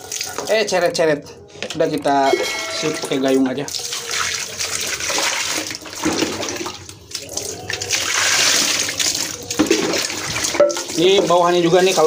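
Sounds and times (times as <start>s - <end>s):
water splashing on metal mould: 3.0s - 12.0s.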